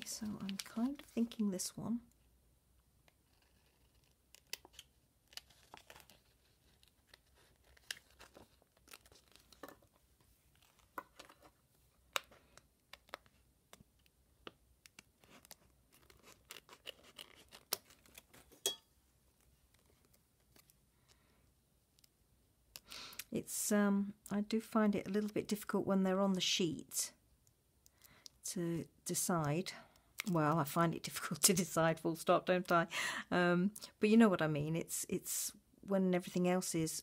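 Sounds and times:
plastic sticker sheet crinkling: 0:00.0 - 0:01.4, 0:03.2 - 0:09.7, 0:12.1 - 0:18.6.

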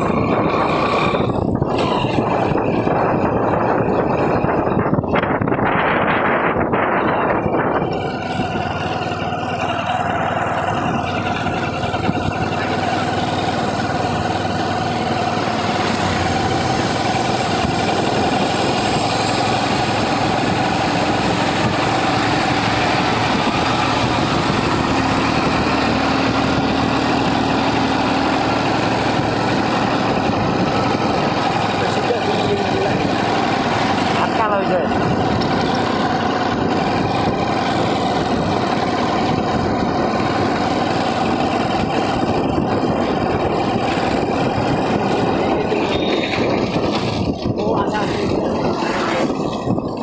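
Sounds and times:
motorcycle engine running: 0:00.0 - 0:50.0.

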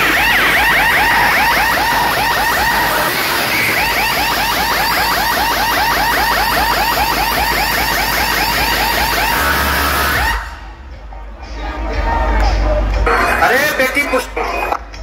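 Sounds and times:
electronic siren chirps: 0:00.0 - 0:10.8
deep bass: 0:07.6 - 0:15.0.

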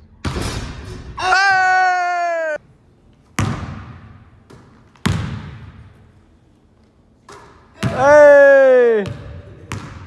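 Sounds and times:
basketball bouncing on wooden floor: 0:03.4 - 0:05.9, 0:09.0 - 0:10.0.

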